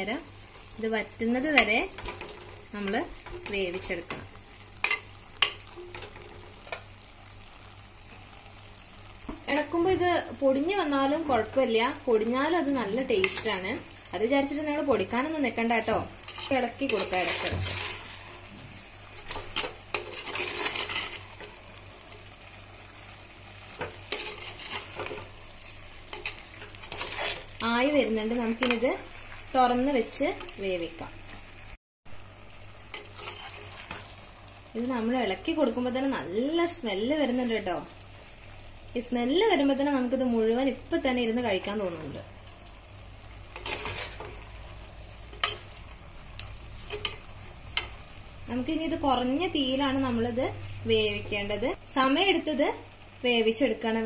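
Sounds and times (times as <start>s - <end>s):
food sizzling softly: 0.0s - 54.0s
spoon scraping in clay pot: 19.2s - 21.3s, 26.1s - 27.5s, 32.9s - 34.0s, 43.6s - 44.3s.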